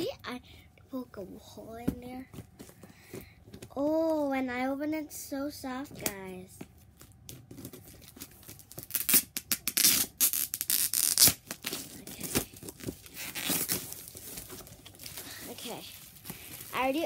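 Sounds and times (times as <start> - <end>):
packaging being torn open: 7.6 - 15.1.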